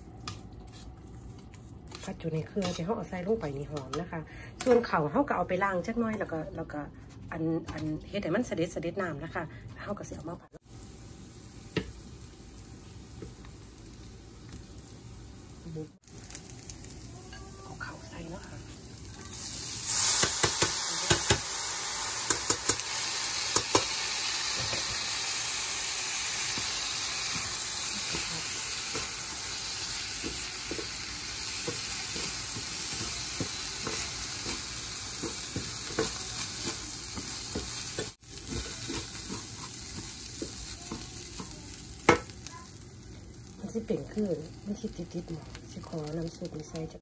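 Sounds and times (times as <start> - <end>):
rice sizzling in hot oil: 10.6 - 47.0
wooden spatula scraping a pan: 27.3 - 41.5.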